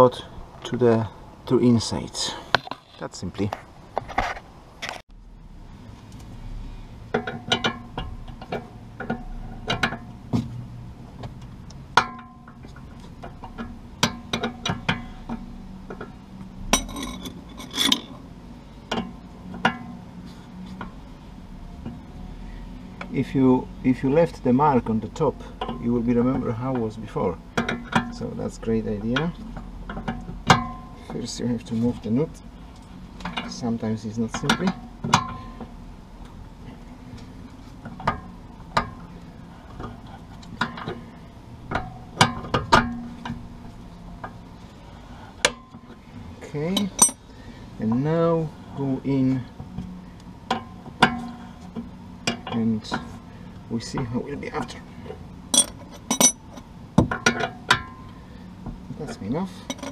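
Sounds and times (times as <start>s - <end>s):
spanners clinking on metal: 16.8s - 18.1s, 46.7s - 47.2s, 55.5s - 58.0s, 59.6s - 59.9s.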